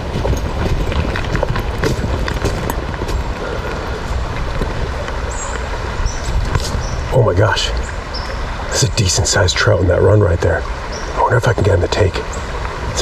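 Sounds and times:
footsteps crunching dry leaves: 0.0 - 7.0
wind rumble on microphone: 0.0 - 13.0.

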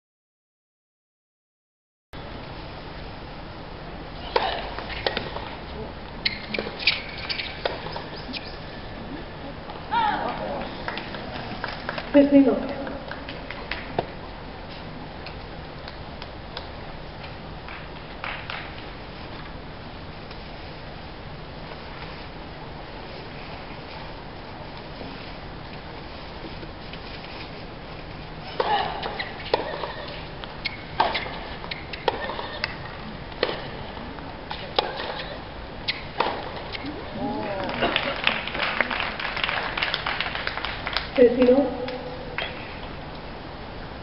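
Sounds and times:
rackets striking tennis ball: 4.2 - 5.6, 28.5 - 33.8, 34.5 - 36.9.

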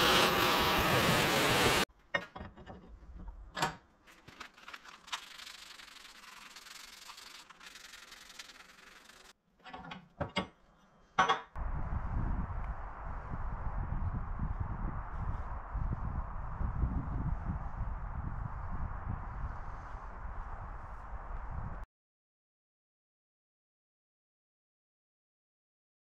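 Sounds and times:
low outdoor rumble: 11.6 - 21.8.

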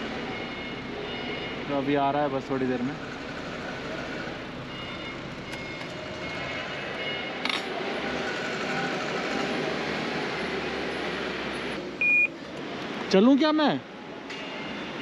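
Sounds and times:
faint high beeps: 4.7 - 7.3, 12.0 - 12.3.

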